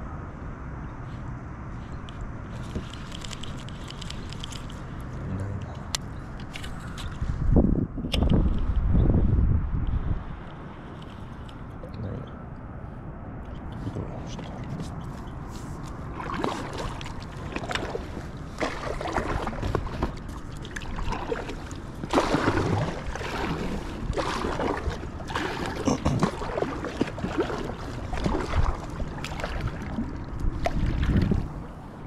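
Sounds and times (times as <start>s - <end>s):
steady low rumble: 3.4s - 32.0s
paddle splashing in water: 15.5s - 31.8s.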